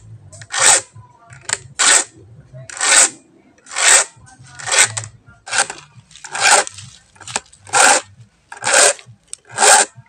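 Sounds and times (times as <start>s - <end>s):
file rasping on saw chain: 0.4s - 0.9s, 1.8s - 2.1s, 2.7s - 3.1s, 3.7s - 6.7s, 7.7s - 10.0s.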